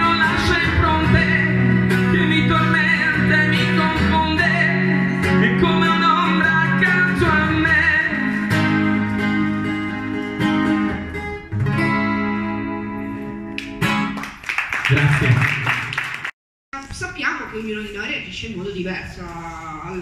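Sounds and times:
man singing: 0.0s - 10.1s
acoustic guitar strumming: 0.0s - 14.2s.

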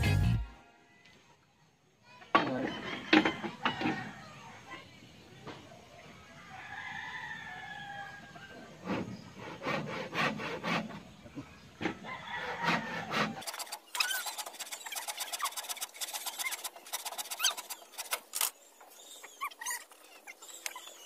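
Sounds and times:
rooster crowing: 6.4s - 8.8s, 12.0s - 13.4s
hand saw cutting wood: 8.8s - 11.2s, 12.4s - 18.5s.

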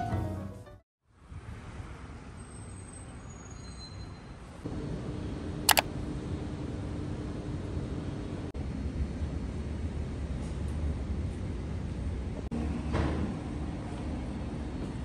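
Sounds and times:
traffic noise: 1.1s - 4.6s.

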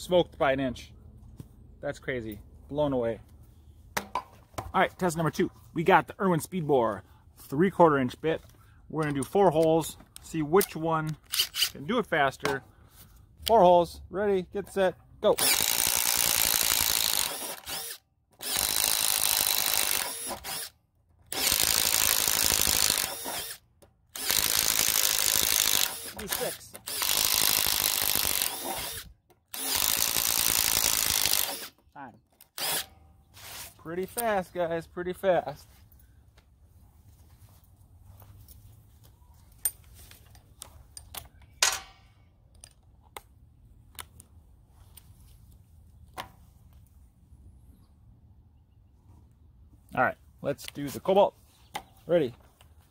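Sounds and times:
tools clicking and knocking: 9.0s - 11.8s, 15.4s - 33.0s, 39.5s - 43.3s
impact driver boring into wood: 15.4s - 31.8s, 32.5s - 32.9s.

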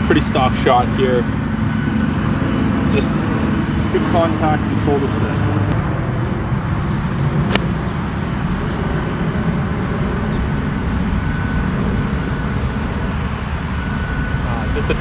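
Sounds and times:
golf club striking ball: 7.5s - 7.9s.

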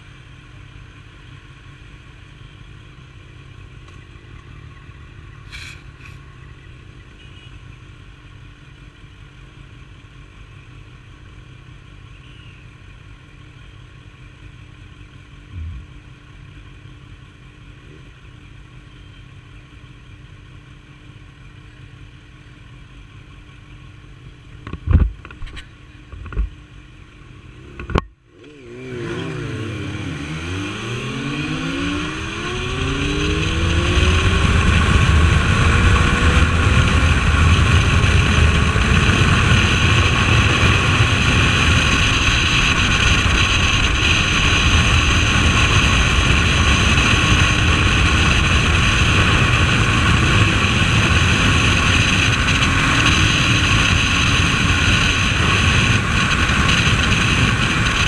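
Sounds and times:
motorcycle accelerating: 14.9s - 17.0s, 27.2s - 58.0s
wind rush over microphone: 31.7s - 58.0s.

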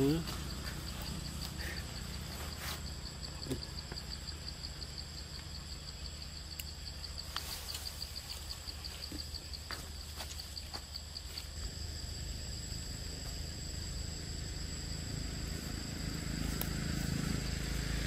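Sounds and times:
low steady rumble: 0.0s - 10.1s, 10.9s - 18.0s
insect chirping: 0.0s - 18.0s
faint clicks: 6.5s - 6.7s.

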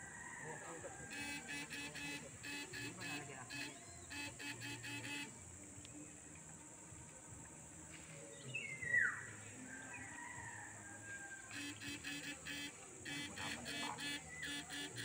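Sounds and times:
bird steady whistled note: 1.1s - 5.3s, 11.5s - 15.0s.

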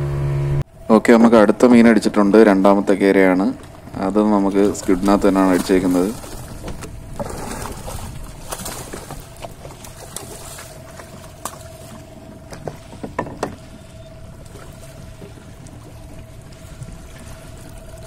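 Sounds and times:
faint steady hum: 0.0s - 18.0s
water splashing against hull: 0.0s - 18.0s
knocks: 12.5s - 13.6s.

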